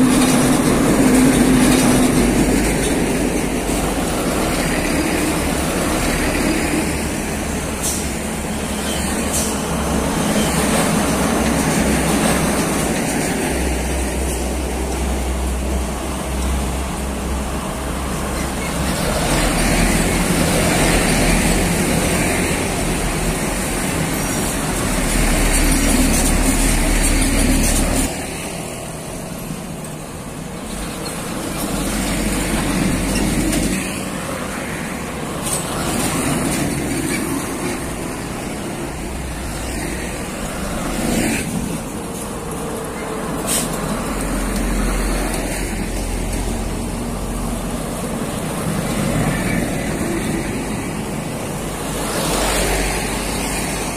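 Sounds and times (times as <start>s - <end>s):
trucks and cars passing: 0.0s - 53.9s.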